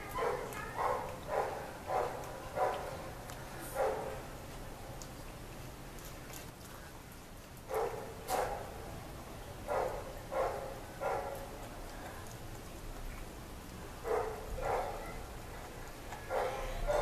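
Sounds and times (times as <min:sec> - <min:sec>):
puppy chewing: 0:00.0 - 0:08.8, 0:09.6 - 0:17.0.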